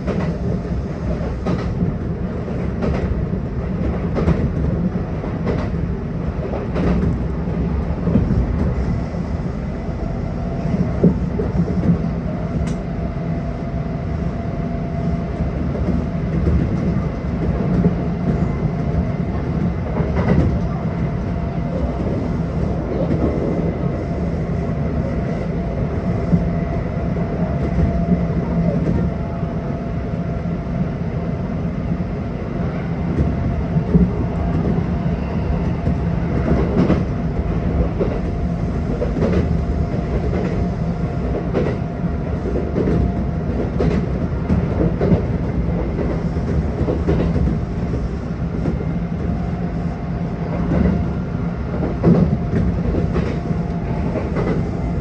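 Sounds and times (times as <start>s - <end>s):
rail-joint clicks: 0.0s - 9.0s, 10.6s - 12.9s, 15.7s - 20.8s, 35.5s - 49.4s, 50.5s - 51.1s, 51.7s - 55.0s
train wheels rumbling on rail: 0.0s - 55.0s.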